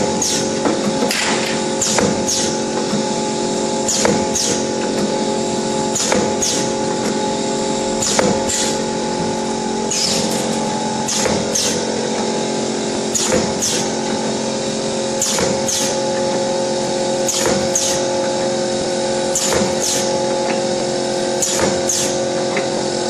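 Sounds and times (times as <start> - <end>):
machine motor hum: 0.0 - 23.0.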